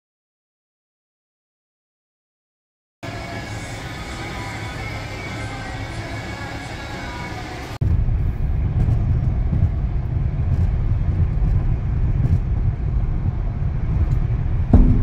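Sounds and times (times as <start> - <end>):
car tyre and engine rumble: 3.0 - 15.0.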